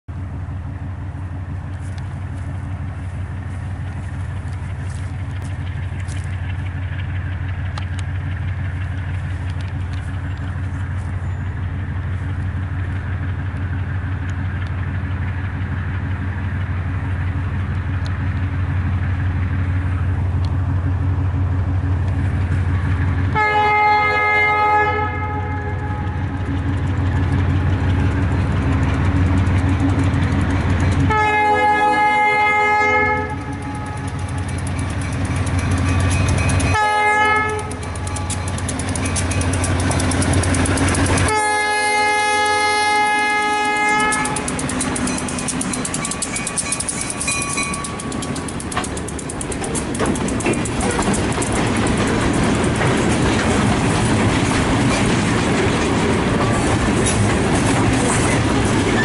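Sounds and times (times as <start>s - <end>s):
diesel locomotive engine rumble: 0.1s - 59.0s
locomotive horn: 23.3s - 26.4s, 31.0s - 34.4s, 36.6s - 38.5s, 41.2s - 44.7s.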